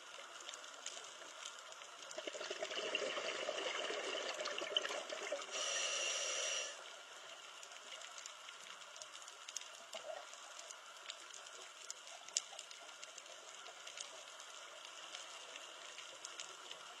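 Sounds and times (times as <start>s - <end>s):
sharp clicks and crackles: 0.0s - 2.3s, 6.8s - 17.0s
underwater hiss: 4.3s - 7.0s.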